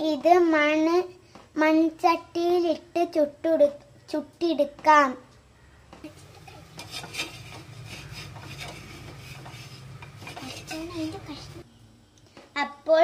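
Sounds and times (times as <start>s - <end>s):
steady low hum: 5.4s - 12.4s
metal spatula scraping clay pan: 6.0s - 11.6s.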